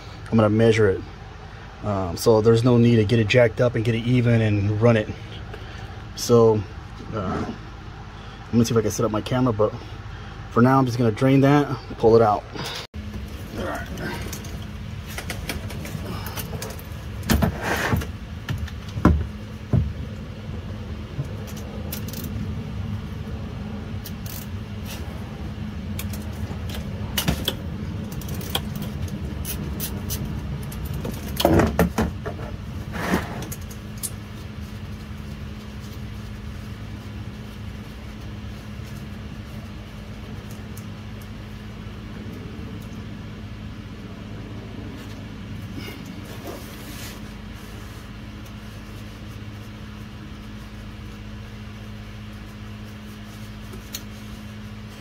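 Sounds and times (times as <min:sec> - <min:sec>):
steady low hum: 0:00.0 - 0:55.0
ratchet clicking: 0:24.0 - 0:24.6.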